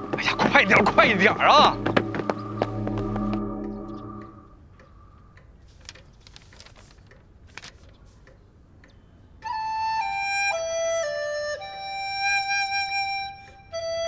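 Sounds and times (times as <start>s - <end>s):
flute melody: 0.0s - 4.6s, 9.4s - 14.0s
low steady tone: 0.9s - 4.9s
light ticking: 3.6s - 9.3s.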